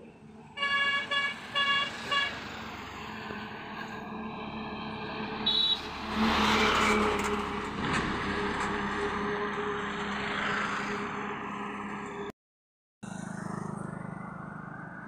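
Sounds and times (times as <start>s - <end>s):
truck engine and tyres passing: 0.0s - 12.3s, 13.0s - 15.0s
truck horn toot: 0.6s - 2.4s, 5.4s - 7.6s.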